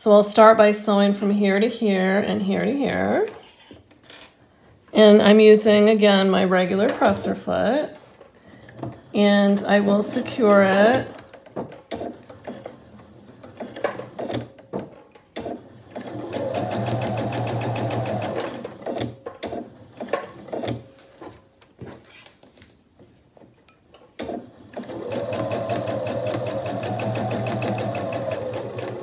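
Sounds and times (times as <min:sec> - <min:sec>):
sewing machine stitching: 0:08.7 - 0:14.5, 0:15.4 - 0:20.8, 0:24.2 - 0:29.0.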